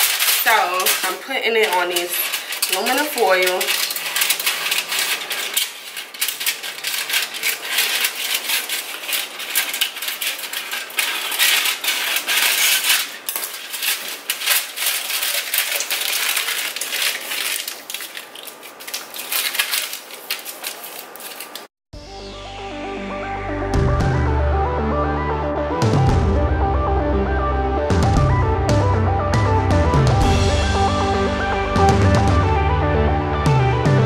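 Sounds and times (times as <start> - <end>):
aluminum foil crinkling: 0.0 - 21.7
scissors cutting foil: 0.0 - 21.7.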